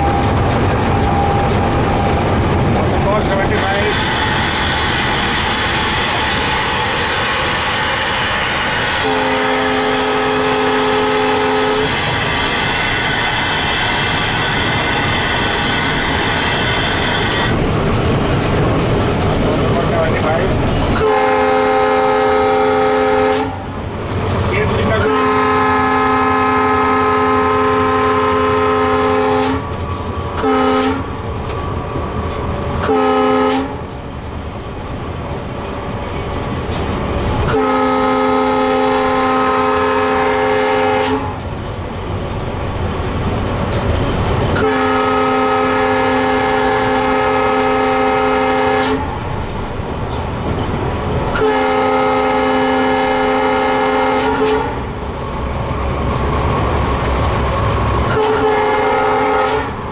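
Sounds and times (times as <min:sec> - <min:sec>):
diesel locomotive running: 0:00.0 - 0:59.9
train wheels on track: 0:00.0 - 0:59.9
locomotive air horn blasts: 0:03.6 - 0:17.5, 0:21.0 - 0:23.7, 0:24.9 - 0:29.6, 0:30.4 - 0:31.1, 0:32.8 - 0:33.8, 0:37.5 - 0:41.4, 0:44.6 - 0:49.1, 0:51.3 - 0:54.8, 0:58.1 - 0:59.8.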